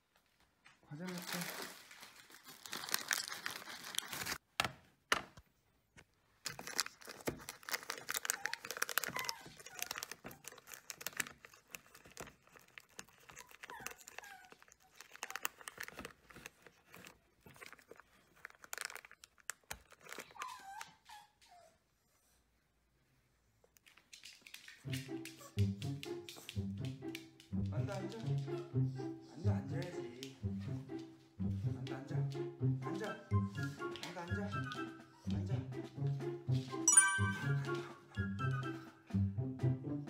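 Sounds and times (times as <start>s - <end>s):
plastic bag crinkling: 0.9s - 4.4s, 6.4s - 20.5s.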